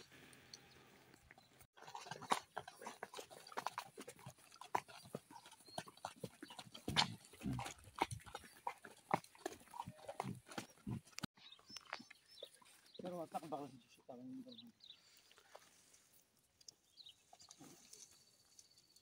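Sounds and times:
mule hooves clopping on dirt: 1.1 - 13.2.

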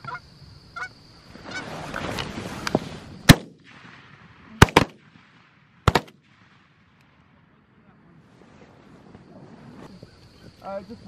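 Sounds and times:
geese honking: 0.0 - 1.8
shotgun shots: 3.2 - 6.8.

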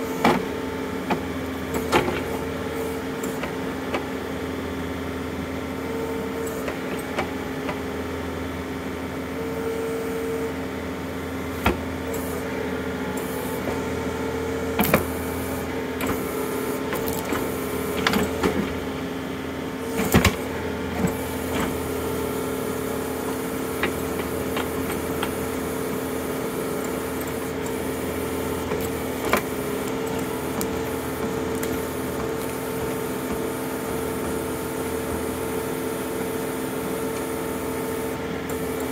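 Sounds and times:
tractor diesel engine: 11.4 - 38.9.

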